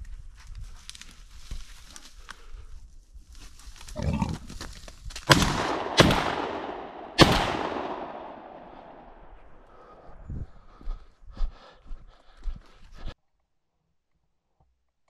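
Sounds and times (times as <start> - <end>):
gunshots with long echo: 5.3 - 10.1.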